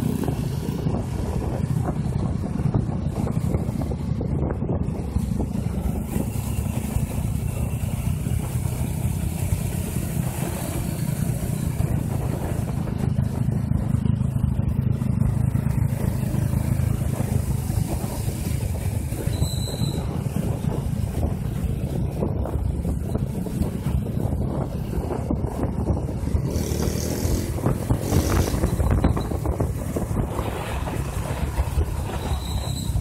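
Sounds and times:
motorcycle engines droning: 0.0s - 33.0s.

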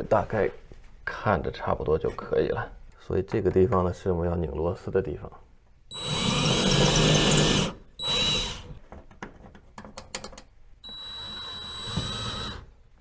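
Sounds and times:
cordless drill driving screws: 5.9s - 8.7s, 10.9s - 12.7s
clicks and knocks: 8.9s - 10.5s.

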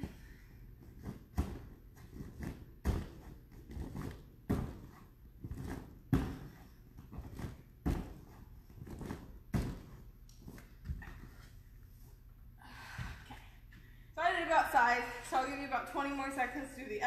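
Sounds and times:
bare feet thudding on a mat: 0.8s - 11.4s.

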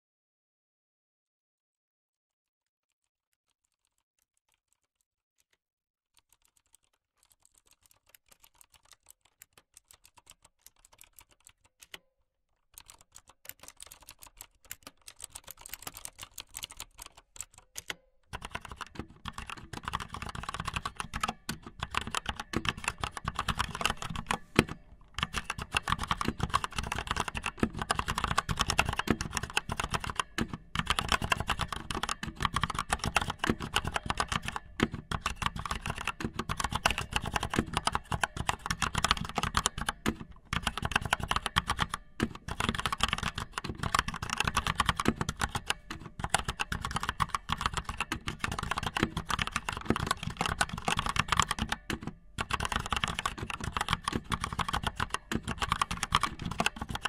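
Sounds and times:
fast dense clicking and tapping: 13.6s - 57.0s.

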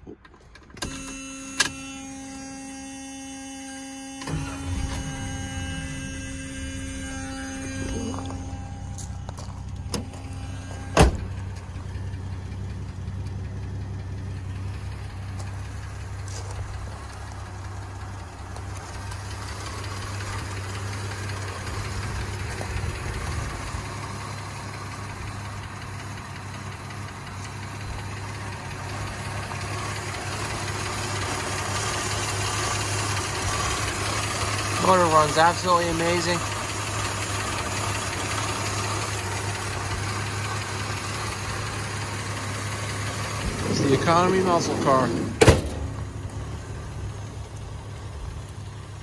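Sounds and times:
car engine idling: 0.0s - 49.0s
sharp bang: 45.0s - 46.0s.

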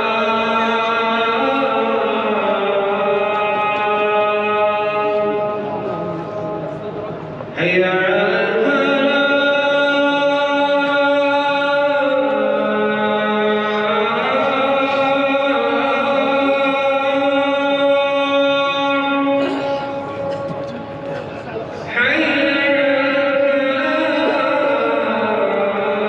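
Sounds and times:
man chanting call to prayer: 0.0s - 26.0s.

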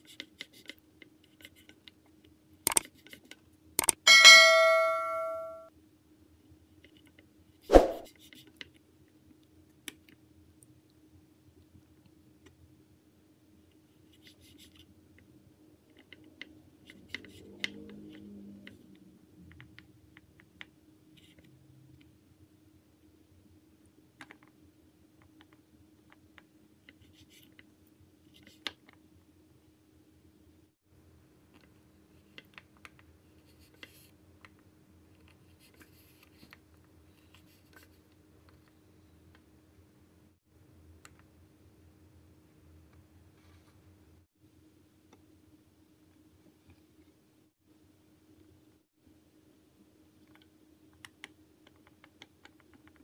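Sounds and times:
low steady hum: 4.1s - 5.7s
knife cutting on wooden board: 7.7s - 8.1s.

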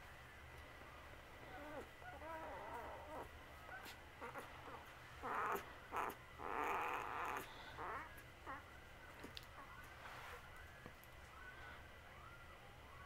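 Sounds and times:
rustling of squirming puppy: 1.4s - 11.5s
puppy squeaking and whimpering: 1.5s - 9.9s.

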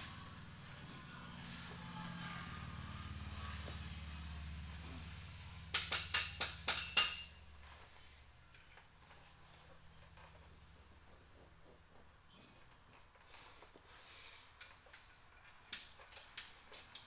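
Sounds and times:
low steady hum: 0.0s - 5.8s
sharp metal-on-metal strikes: 5.7s - 7.4s.

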